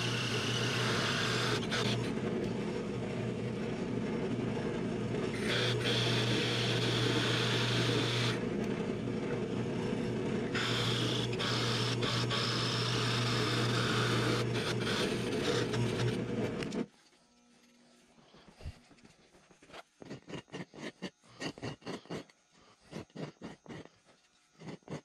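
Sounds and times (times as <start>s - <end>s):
drill press motor hum: 0.0s - 17.8s.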